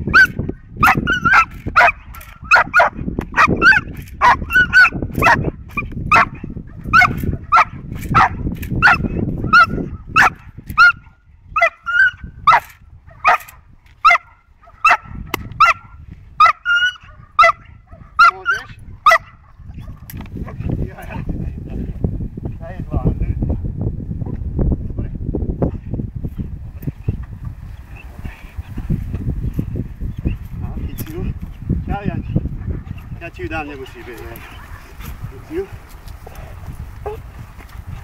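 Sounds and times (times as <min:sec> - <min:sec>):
puppy barking high and sharp: 0:00.1 - 0:05.5, 0:06.1 - 0:19.4.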